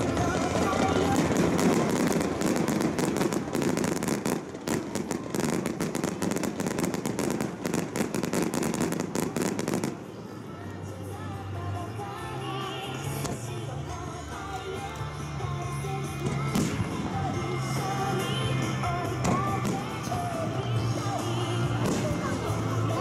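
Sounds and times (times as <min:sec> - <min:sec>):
fireworks crackling and popping: 0:00.0 - 0:11.3, 0:12.0 - 0:23.0
faint background music: 0:00.0 - 0:23.0.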